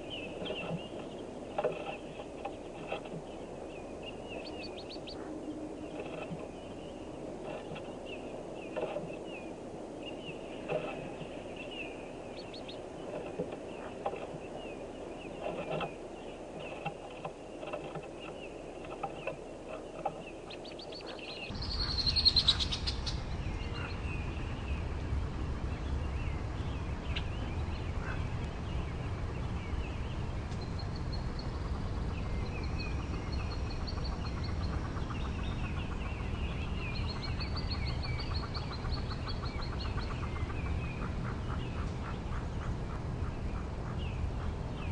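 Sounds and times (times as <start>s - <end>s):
ducklings peeping: 0.0s - 44.9s
steady low rumble: 0.0s - 44.9s
light scratching and knocking: 0.4s - 3.3s, 5.9s - 6.6s, 7.4s - 7.9s, 8.7s - 9.2s, 10.6s - 11.3s, 13.1s - 14.5s, 15.4s - 16.0s, 16.6s - 20.3s.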